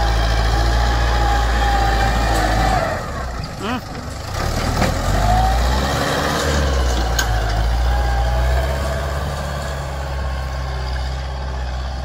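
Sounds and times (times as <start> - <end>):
tractor diesel engine droning: 0.0 - 12.0.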